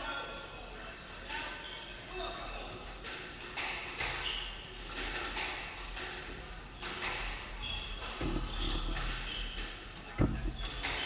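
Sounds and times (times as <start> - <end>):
shoe squeaks: 4.0 - 4.8, 6.8 - 11.0
footsteps on wooden floor: 10.2 - 10.6.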